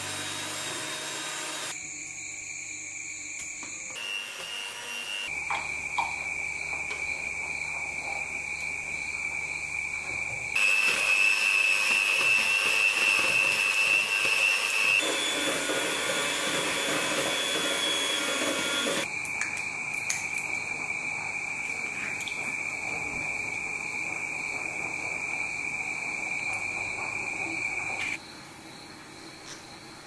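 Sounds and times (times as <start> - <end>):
electric hand mixer whining: 0.0 - 1.7, 4.0 - 5.3, 10.6 - 19.1.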